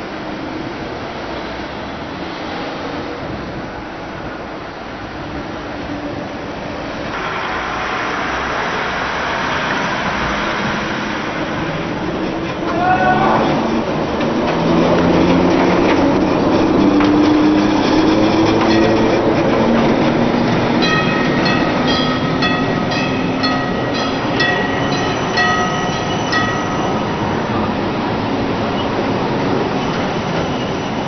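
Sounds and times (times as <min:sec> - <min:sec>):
tram humming along track: 0:00.0 - 0:31.0.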